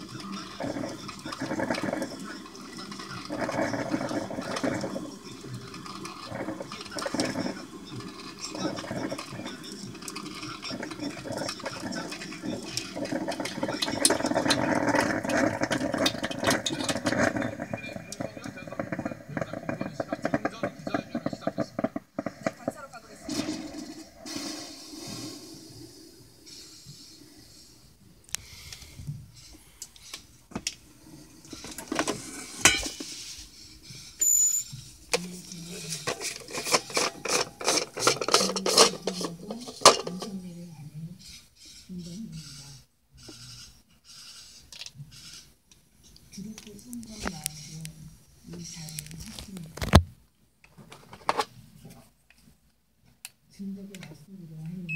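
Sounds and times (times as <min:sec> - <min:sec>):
coffee maker gurgling and sputtering: 0:00.0 - 0:45.4, 0:46.3 - 0:50.0
pops and crackles: 0:00.4 - 0:24.4, 0:48.6 - 0:50.1
plastic lid clicking and rubbing: 0:03.2 - 0:05.1, 0:05.7 - 0:07.6, 0:10.0 - 0:22.7, 0:35.2 - 0:40.4.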